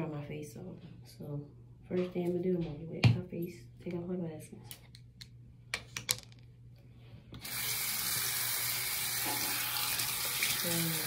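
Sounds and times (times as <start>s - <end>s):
tap water running into basin: 7.4s - 11.0s.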